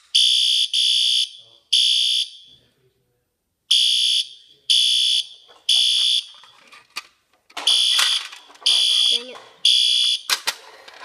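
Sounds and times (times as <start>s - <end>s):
fire alarm horn blasts: 0.2s - 2.5s, 3.7s - 6.4s, 7.7s - 10.3s.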